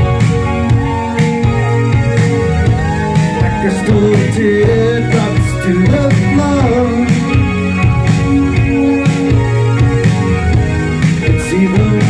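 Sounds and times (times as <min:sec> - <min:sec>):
electric guitar: 0:00.0 - 0:12.0
keyboard synth: 0:00.0 - 0:12.0
steady drum beat: 0:00.0 - 0:12.0
person singing lead vocal: 0:00.5 - 0:07.7, 0:11.2 - 0:12.0.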